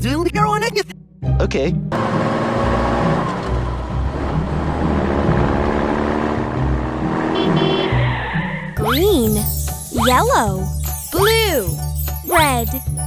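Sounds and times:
vehicle engine running: 0:01.9 - 0:07.9.

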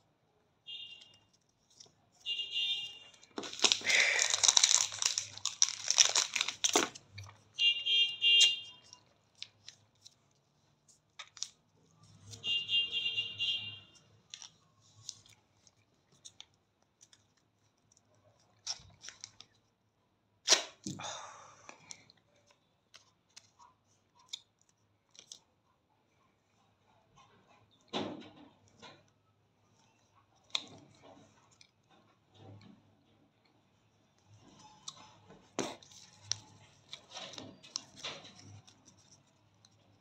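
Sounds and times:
sticky strips peeling: 0:03.1 - 0:07.4
plastic packet crinkling: 0:03.2 - 0:07.4
sharp tearing rip: 0:20.5 - 0:20.8.

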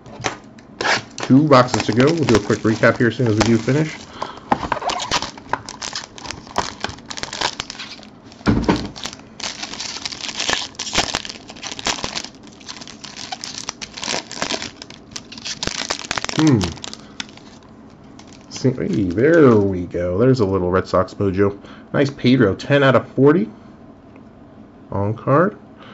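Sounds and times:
foil wrapper crinkling and tearing: 0:00.8 - 0:19.8
person humming: 0:16.4 - 0:16.8.

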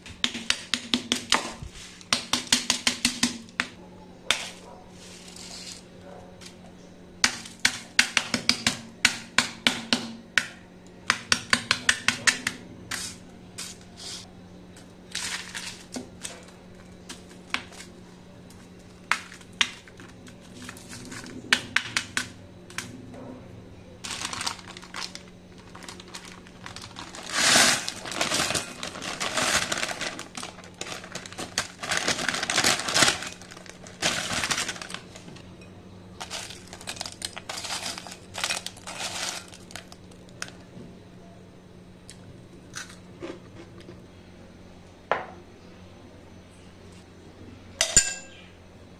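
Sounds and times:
candy pieces sliding into bowl: 0:05.0 - 0:05.8, 0:25.8 - 0:35.2, 0:36.2 - 0:39.6
parchment paper crinkling: 0:24.0 - 0:35.3, 0:36.2 - 0:40.6.

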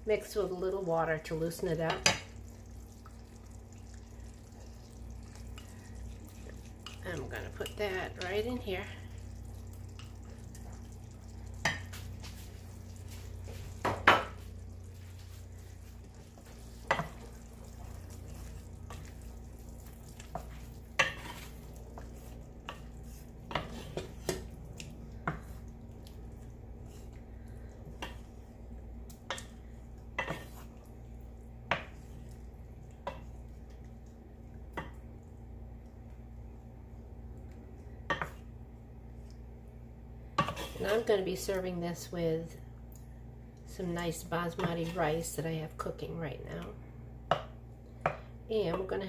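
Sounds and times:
low steady hum: 0:00.0 - 0:49.0
wooden spoon stirring sauce: 0:00.6 - 0:38.5, 0:44.0 - 0:45.3.

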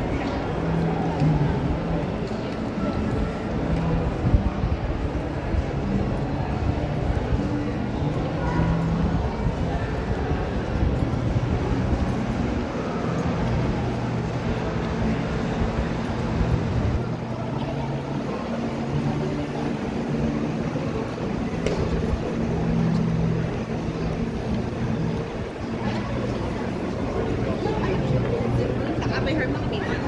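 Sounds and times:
hubbub of shoppers: 0:00.0 - 0:30.0.

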